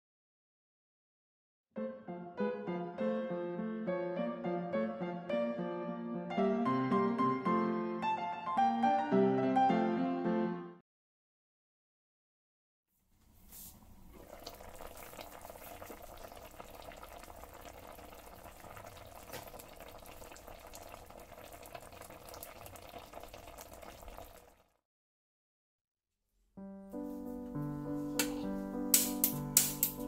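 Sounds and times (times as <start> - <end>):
pot bubbling at a simmer: 13.7 - 24.8.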